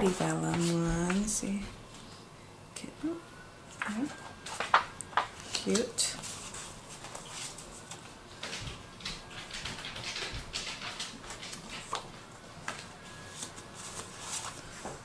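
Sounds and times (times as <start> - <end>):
paper cards rustling and sliding: 0.0 - 1.3, 4.3 - 8.2, 11.3 - 15.0.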